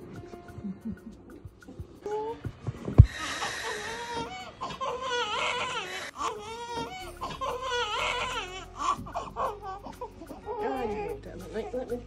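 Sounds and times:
newborn baby crying: 3.2 - 11.2.

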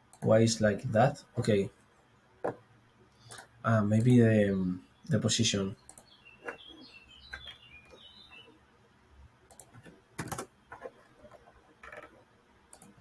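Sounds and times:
mouse and keyboard clicks: 9.5 - 13.0.

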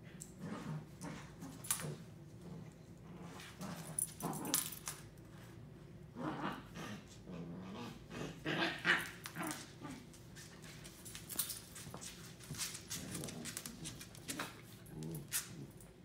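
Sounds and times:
dogs growling: 0.1 - 4.8, 6.1 - 10.1, 12.9 - 16.0
dogs scuffling: 8.9 - 15.8
claws clicking on hard floor: 10.4 - 15.8.

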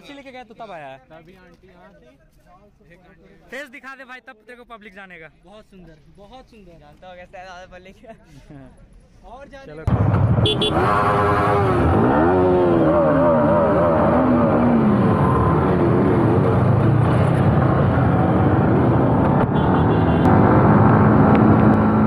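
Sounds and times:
motorcycle engines revving: 9.9 - 22.0.

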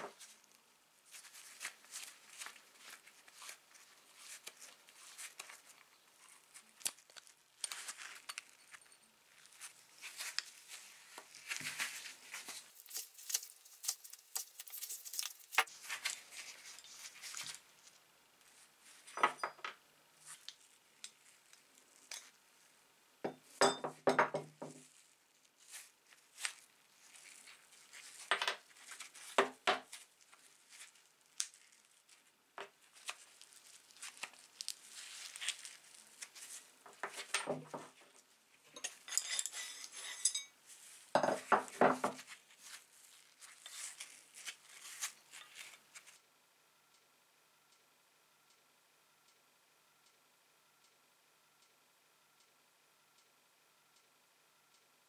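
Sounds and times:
tool scraping inside metal cup: 38.7 - 40.5
metal parts clinking on wooden bench: 38.8 - 40.5.

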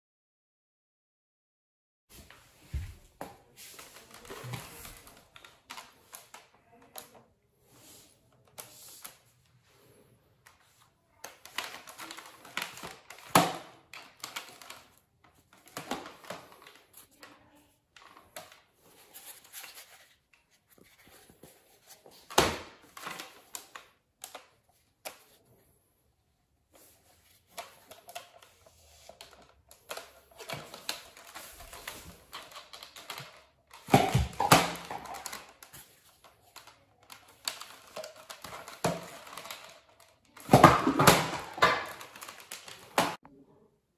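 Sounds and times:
plastic toy blaster clicks and rattles: 11.2 - 16.9, 27.5 - 43.2.

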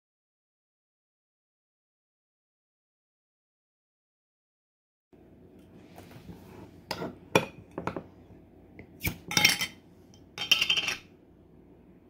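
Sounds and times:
metal lid clinking on glass jar: 9.0 - 9.8, 10.4 - 11.1.

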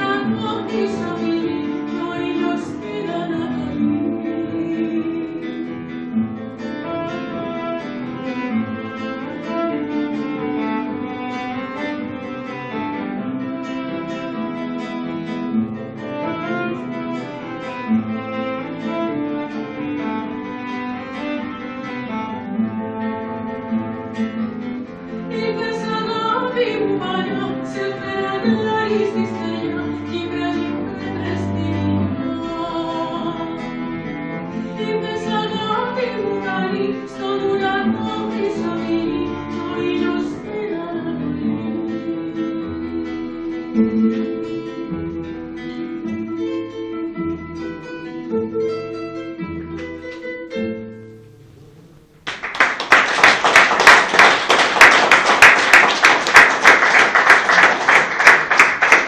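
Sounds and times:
woman singing: 0.0 - 5.8, 25.3 - 33.7, 34.7 - 44.9
bowed cello: 0.0 - 50.1
classical guitar: 0.0 - 59.0
audience applause: 52.2 - 59.0.

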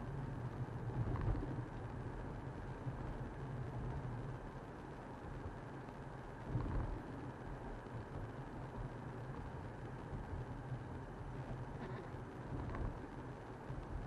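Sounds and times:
vehicle engine rumble: 6.3 - 14.0.

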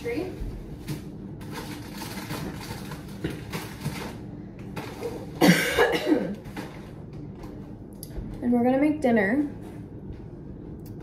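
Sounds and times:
groceries rustling: 0.0 - 7.7
person coughing: 5.4 - 6.5.

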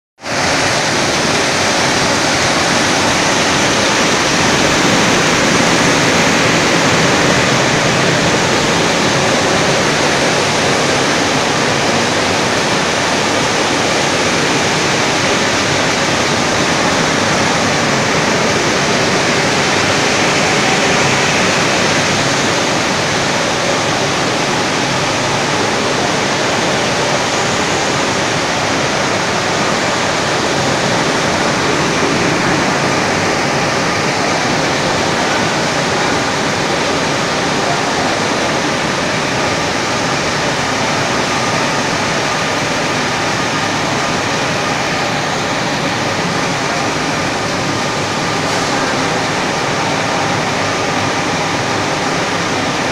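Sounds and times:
machines rushing noise: 0.2 - 52.9.

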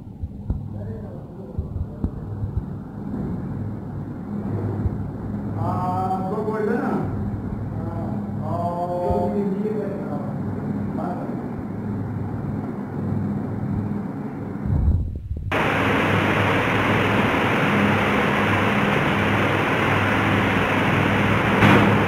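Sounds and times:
rushing background noise: 0.0 - 22.0
low hum: 7.0 - 22.0
bright hiss: 15.5 - 22.0.

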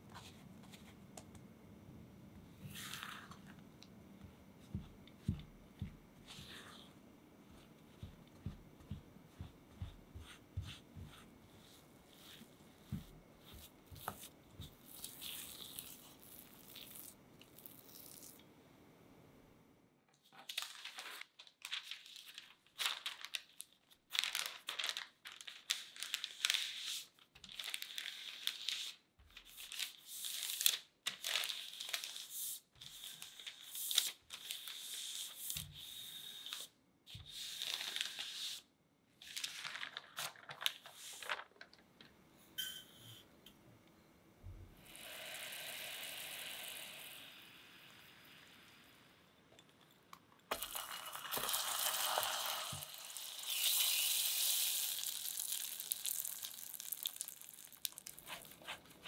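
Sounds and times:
parchment paper crinkling: 20.2 - 38.6, 39.2 - 42.1, 55.0 - 59.0
dough scraping: 58.1 - 59.0.

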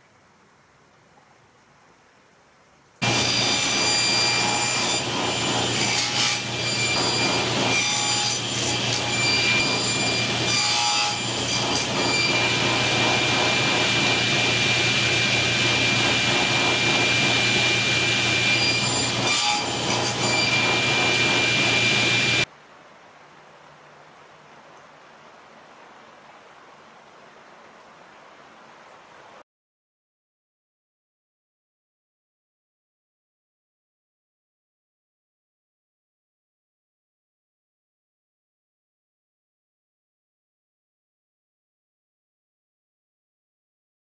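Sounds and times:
saw blade cutting wood: 3.0 - 22.5
table saw running: 3.0 - 22.5.

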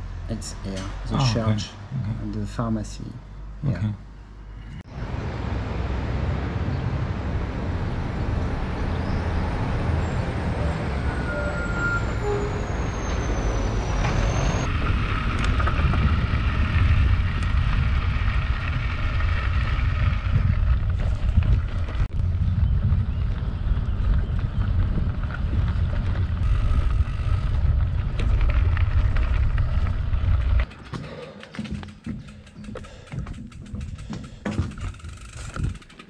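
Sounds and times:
road traffic: 0.0 - 36.0
wind rumble on microphone: 14.1 - 30.7, 33.4 - 35.9.

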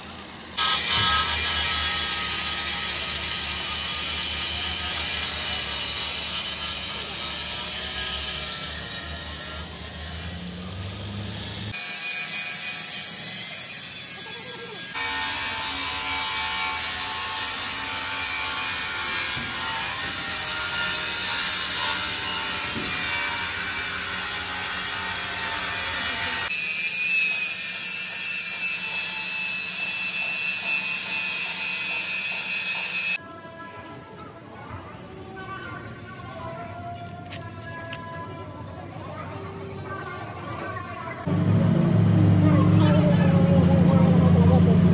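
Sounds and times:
power tools cutting sheet steel: 0.0 - 33.2.

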